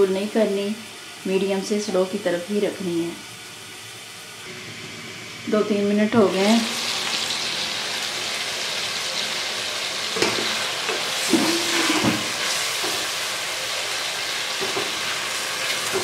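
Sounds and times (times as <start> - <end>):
food sizzling in oil: 0.0 - 16.0
spatula stirring and scraping: 10.2 - 13.1.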